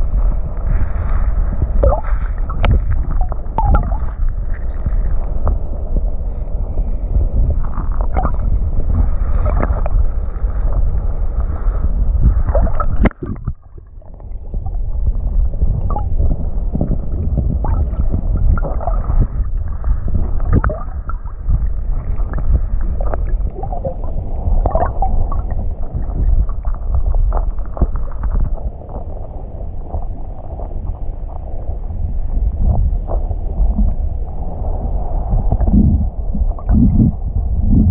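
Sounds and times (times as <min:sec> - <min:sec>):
crackles and knocks: 0:00.0 - 0:31.7
underwater water sloshing: 0:00.0 - 0:31.9.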